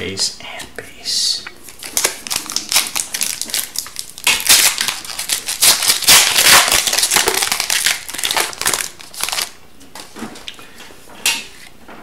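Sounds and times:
foil wrapper tearing and crinkling: 1.7 - 9.6.

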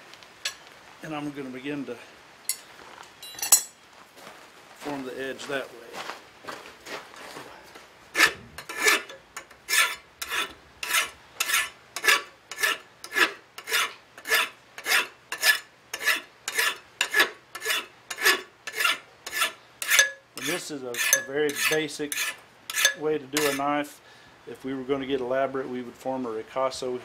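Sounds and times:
hand file rasping on metal: 8.1 - 23.6.

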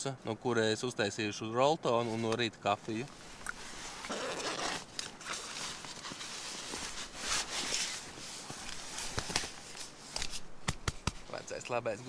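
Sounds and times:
nylon fabric rustling: 3.2 - 10.5.

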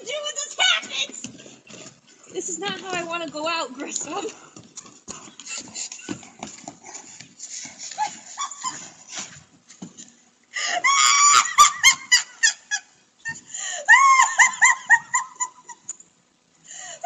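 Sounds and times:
woman laughing hard: 7.9 - 9.2, 10.6 - 16.0.

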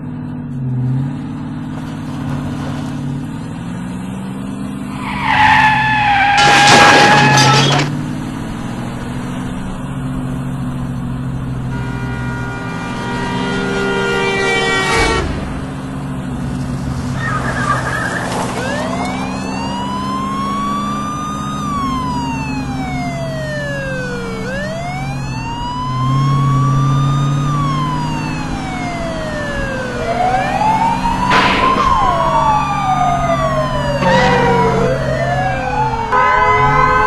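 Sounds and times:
car engines running: 0.0 - 37.0
siren wailing: 4.9 - 7.9, 17.2 - 37.0
held multi-note tone: 31.8 - 36.8.

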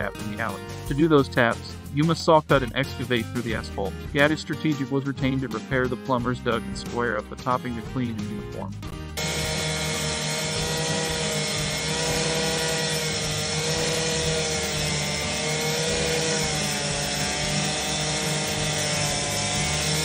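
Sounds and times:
cut-off saw cutting asphalt: 9.2 - 20.0.

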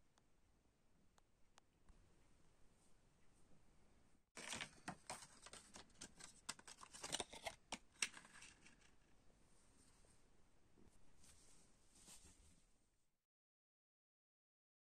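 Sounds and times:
paper rustling and crackling: 4.4 - 9.0.

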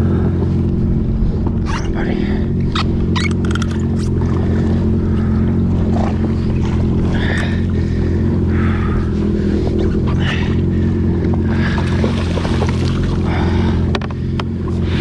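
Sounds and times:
jet ski engine running: 0.0 - 15.0
water splashing against hull: 11.3 - 14.5.

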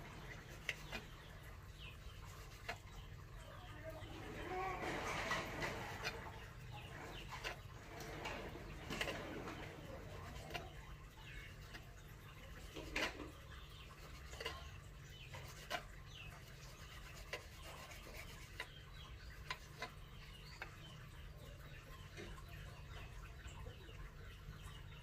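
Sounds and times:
knife scraping and tapping on wood: 0.2 - 1.3, 2.1 - 3.1, 5.3 - 10.9, 12.6 - 20.9.

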